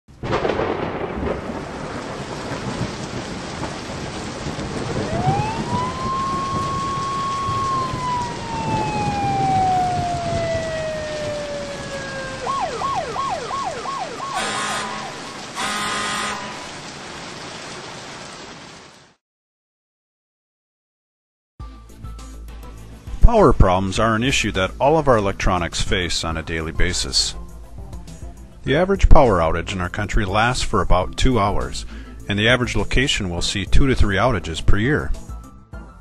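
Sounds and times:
rain and thunderstorm: 0.1 - 19.2
emergency siren wailing and yelping: 4.9 - 16.7
short loud horn blasts: 14.4 - 16.8.

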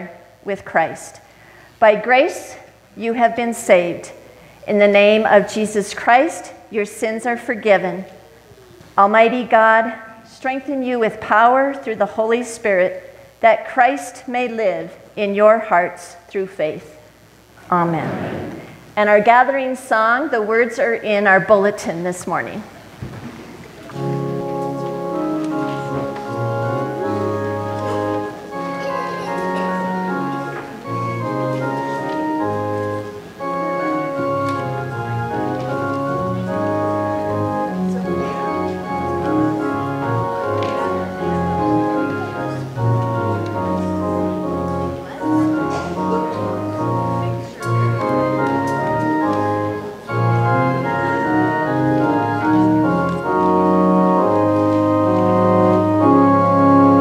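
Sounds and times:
organ playing held chords: 23.9 - 57.0.

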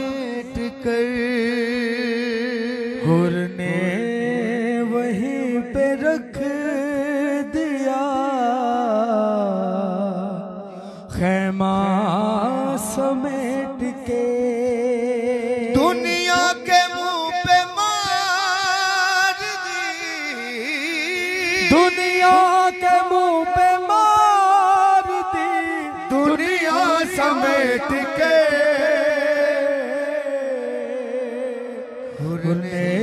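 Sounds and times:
men singing devotional song: 0.0 - 33.0.

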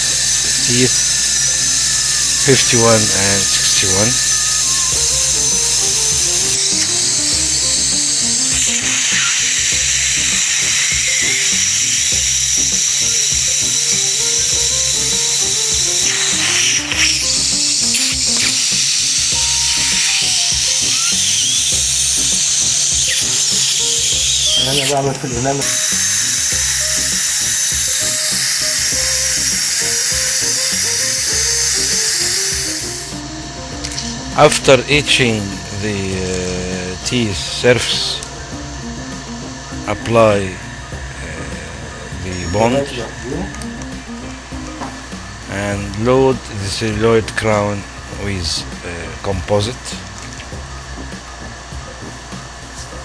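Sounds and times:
background music: 0.0 - 53.0
dental drill whining: 0.0 - 53.0.

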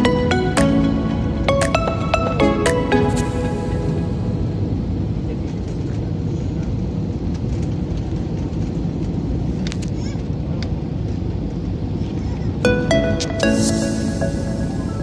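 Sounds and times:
airliner cabin engine rumble: 3.4 - 13.2.

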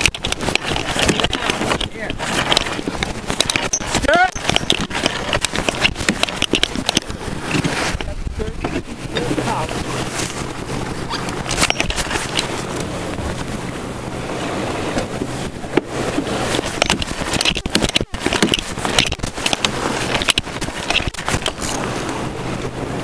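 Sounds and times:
winch handle clicks and knocks: 0.0 - 7.7, 11.4 - 12.5, 16.5 - 21.8
water rushing along hull: 0.0 - 23.0
wind buffeting microphone: 0.0 - 23.0.

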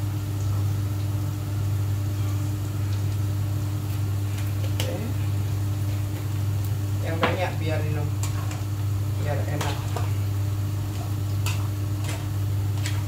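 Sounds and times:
extractor fan humming: 0.0 - 13.0.

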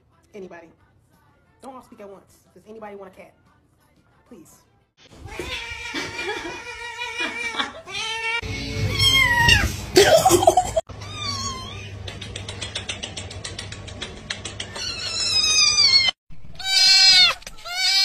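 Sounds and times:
cats meowing and yowling: 5.2 - 9.8, 10.9 - 12.0, 14.7 - 18.0.

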